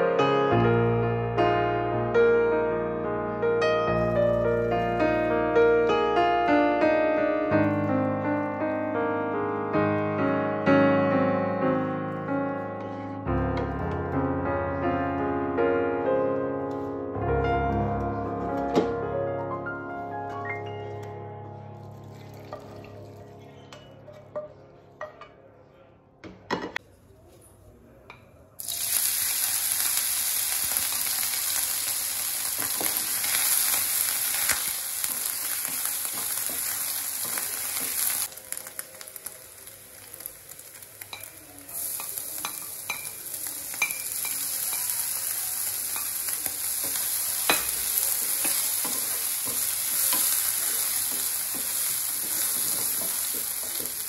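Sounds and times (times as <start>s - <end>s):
meat sizzling in a frying pan: 28.6s - 54.0s.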